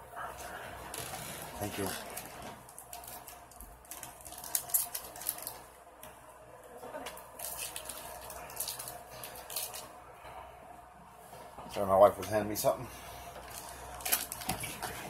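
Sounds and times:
foil wrapper crinkling: 0.9 - 5.8, 7.1 - 10.0, 13.4 - 15.0.

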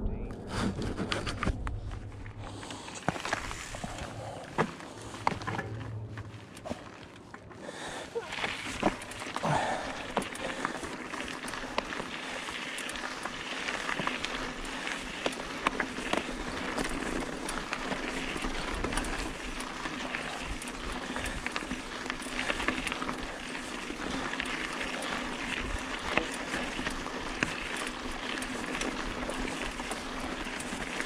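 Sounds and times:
bike rattling: 0.0 - 31.0
bike tyres rolling on gravel: 0.1 - 31.0.

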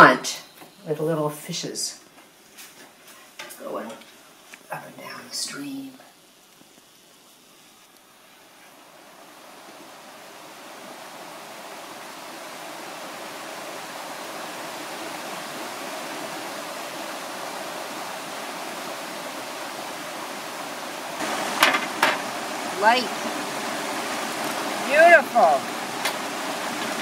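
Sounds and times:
brook flowing over rocks: 8.0 - 27.0.

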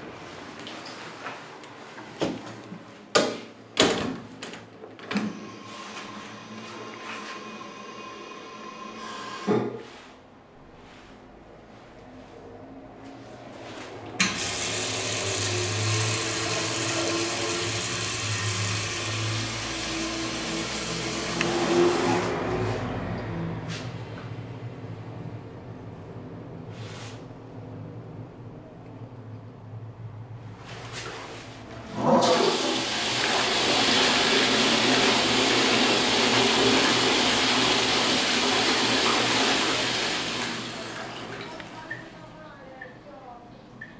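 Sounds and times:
toilet flushing: 5.0 - 9.5, 14.1 - 22.9, 30.9 - 42.1
tap water rushing into steel basin: 14.2 - 22.4, 31.9 - 42.0.

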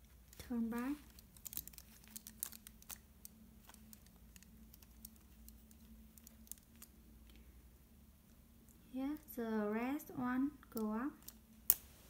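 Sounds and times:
plastic puzzle clicks and taps: 0.3 - 7.4.

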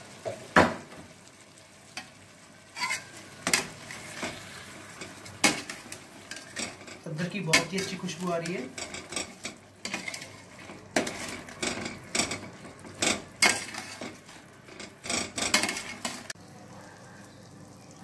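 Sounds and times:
metal spatula scraping a pot: 2.7 - 16.4.

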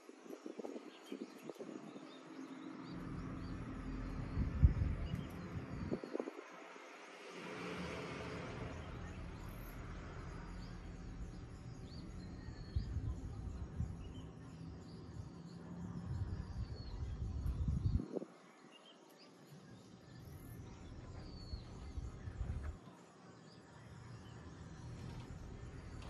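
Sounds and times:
small birds chirping: 0.0 - 26.0
low rumble: 2.9 - 6.2, 20.6 - 22.8.

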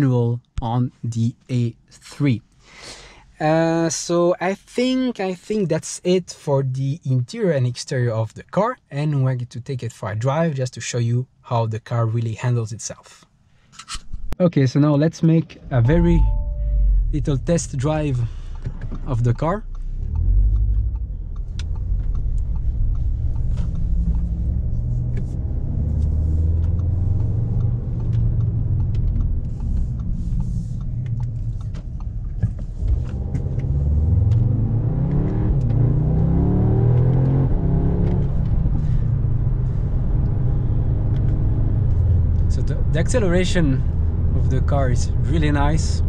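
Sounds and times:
car engine accelerating: 15.5 - 46.0.

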